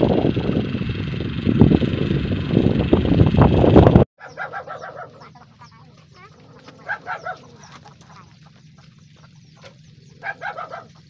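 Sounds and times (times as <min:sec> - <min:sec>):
chickens clucking: 0:04.2 - 0:11.0.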